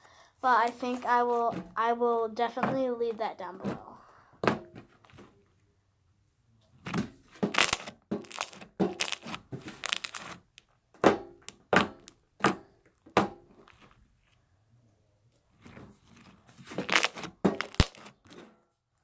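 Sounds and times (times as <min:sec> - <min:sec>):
sharp pops of air pockets: 0:06.8 - 0:13.4
slime being squeezed by hand: 0:07.4 - 0:10.6, 0:16.7 - 0:18.2.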